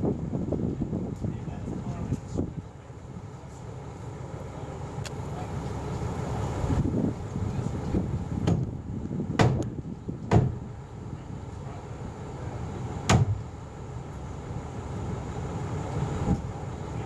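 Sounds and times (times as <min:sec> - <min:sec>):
knocks on timber: 0:09.4 - 0:09.6, 0:10.3 - 0:10.6, 0:13.1 - 0:13.4.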